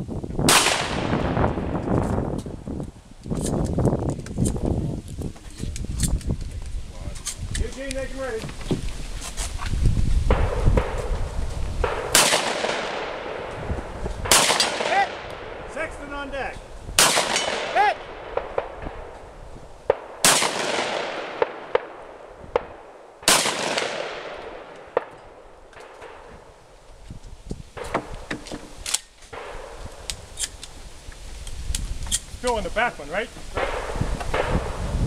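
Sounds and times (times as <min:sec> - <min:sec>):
loud gunshots with echo: 0:00.5 - 0:01.6, 0:11.8 - 0:15.8, 0:17.0 - 0:19.1, 0:19.9 - 0:26.3, 0:33.6 - 0:34.8
faint sharp gunshot cracks: 0:11.8 - 0:13.4, 0:14.3 - 0:15.5, 0:17.0 - 0:19.0, 0:19.9 - 0:22.0, 0:23.3 - 0:25.2.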